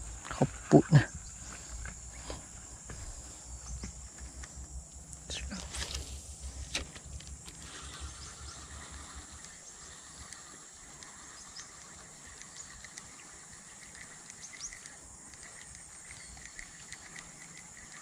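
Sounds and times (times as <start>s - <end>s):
insects droning: 0.0s - 18.0s
faint chirps: 7.5s - 18.0s.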